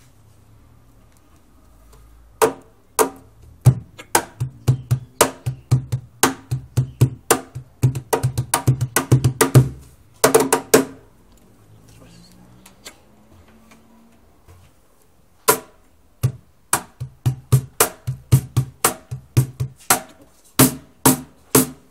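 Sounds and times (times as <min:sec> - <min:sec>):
cajon played with hands: 0:02.4 - 0:11.0, 0:15.5 - 0:21.9.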